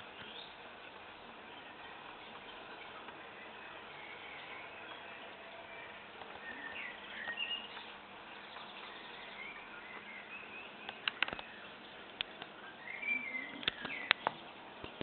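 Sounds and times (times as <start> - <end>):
faint bird chirps: 0.0 - 15.0
steady hiss: 0.0 - 15.0
sharp clicks: 10.9 - 11.5, 13.6 - 15.0.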